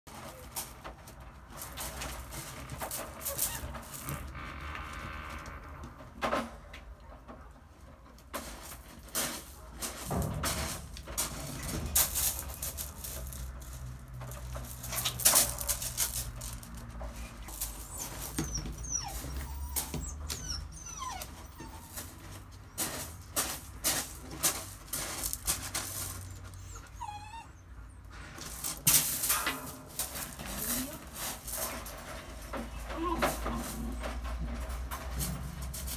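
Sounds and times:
puppy whines: 17.6 - 22.3, 26.1 - 28.0.

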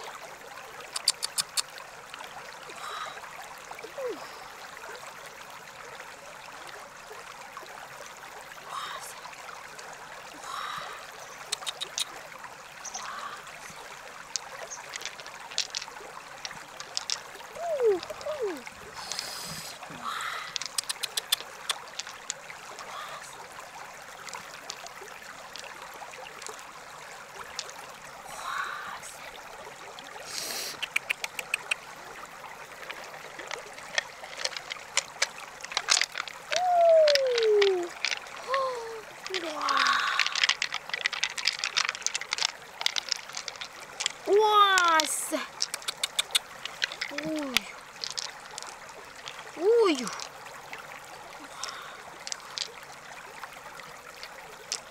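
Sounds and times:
river water trickling: 0.0 - 54.9
small water splashes: 0.0 - 54.9
quick clicks and taps: 1.0 - 1.6, 20.6 - 21.9, 45.6 - 47.2.

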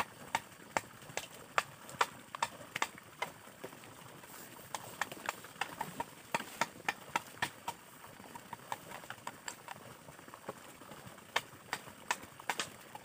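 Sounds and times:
machete hacking bamboo: 4.7 - 7.8.

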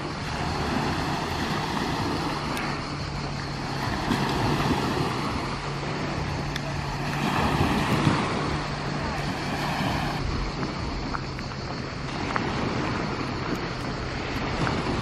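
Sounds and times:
outdoor noise: 0.0 - 15.0.

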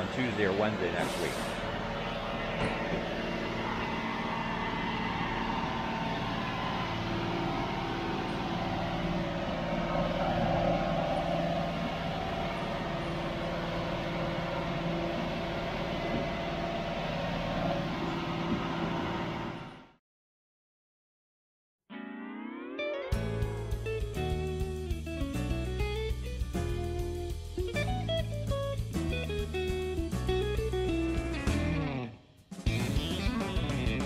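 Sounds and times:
diesel engine humming: 0.0 - 19.8, 23.2 - 32.0.

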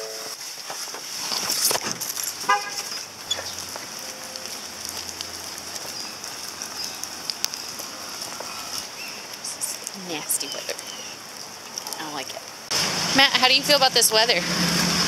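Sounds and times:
rain hissing: 0.0 - 15.0
footsteps on wet pavement: 0.3 - 15.0
car horn toot: 2.5 - 2.9.

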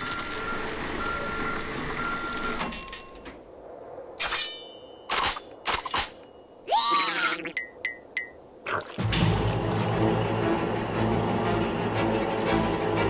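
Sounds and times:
short metallic ring: 4.2 - 5.1.

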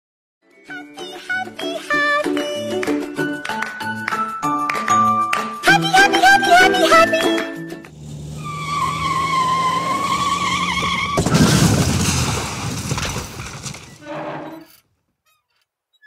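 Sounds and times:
tires squealing in a skid: 7.8 - 14.8.

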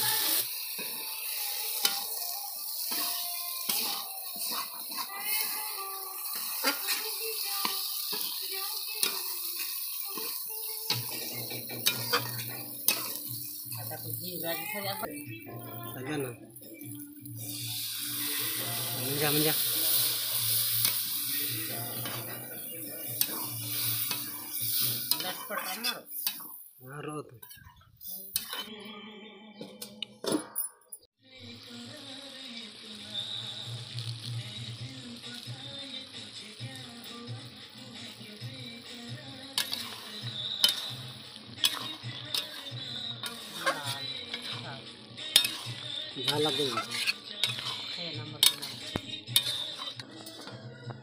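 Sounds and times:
food sizzling in a pan: 0.0 - 27.1, 28.0 - 28.8, 31.2 - 51.0
faint background music or voice: 0.0 - 29.0, 34.4 - 51.0
spatula scraping a metal pan: 2.8 - 5.6, 6.3 - 13.8, 19.9 - 26.6, 28.3 - 28.7, 39.5 - 41.0, 41.6 - 44.6, 45.2 - 50.4.

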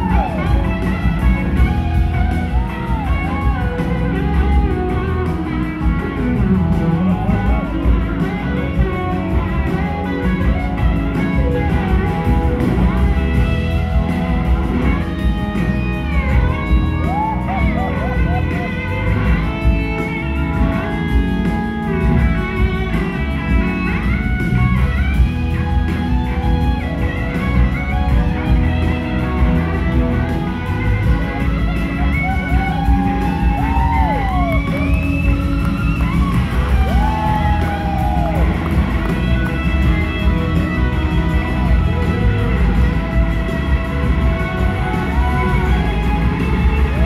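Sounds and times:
drums: 0.0 - 47.0
electric slide guitar: 0.0 - 47.0
live rock band playing: 0.0 - 47.0.

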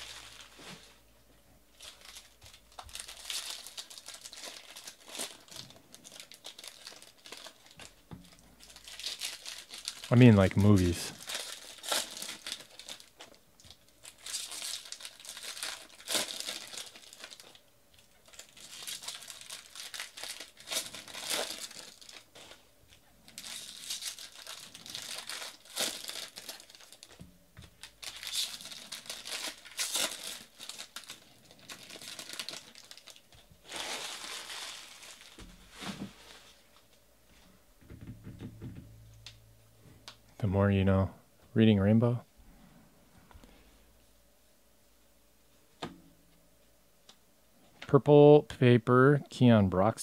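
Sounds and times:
foil wrappers crinkling and tearing: 0.0 - 1.1, 1.7 - 36.9.

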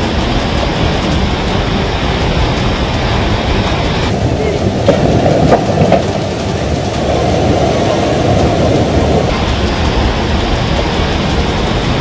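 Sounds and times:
floodwater surging: 0.0 - 12.0
storm wind rushing: 0.0 - 12.0.

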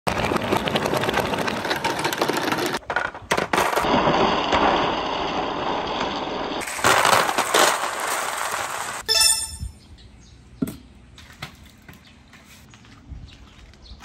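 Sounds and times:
balls rolling down plastic gutter: 0.1 - 9.0.

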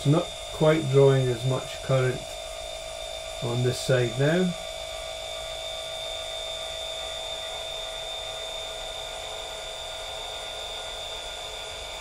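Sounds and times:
telescope mount motor whine: 0.0 - 12.0.

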